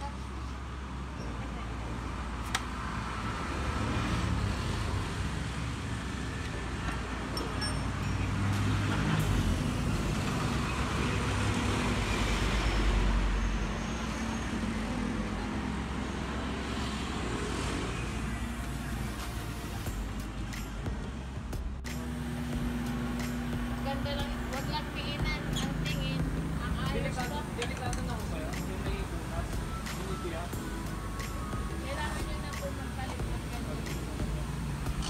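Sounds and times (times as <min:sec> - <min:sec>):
road traffic rumble: 0:00.0 - 0:35.0
vehicle passing: 0:01.8 - 0:07.3.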